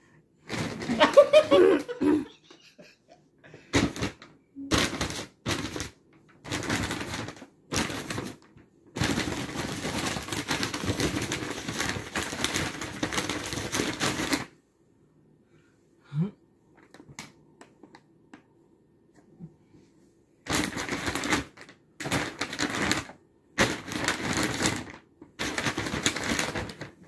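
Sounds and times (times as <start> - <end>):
paper bag crinkling and rustling: 0.5 - 1.6, 3.8 - 14.5, 20.5 - 27.0.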